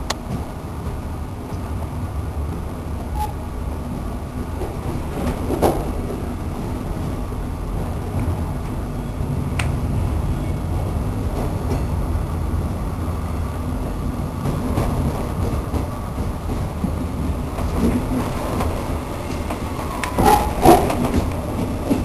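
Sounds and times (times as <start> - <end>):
train rumbling from inside carriage: 0.0 - 22.0
sharp knocks from train wheels: 14.4 - 22.0.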